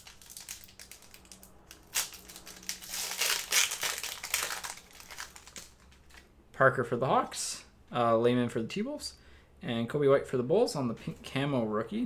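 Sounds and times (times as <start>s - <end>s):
plastic wrappers crinkling: 0.0s - 6.3s.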